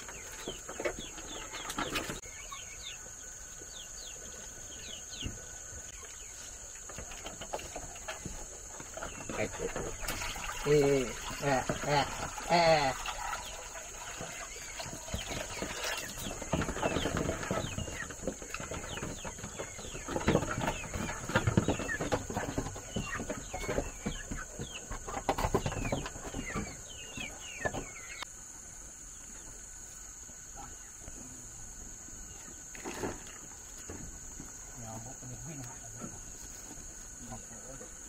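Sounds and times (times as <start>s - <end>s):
birds chirping: 0.0s - 38.0s
rustling and knocks: 5.1s - 10.6s, 14.1s - 28.2s.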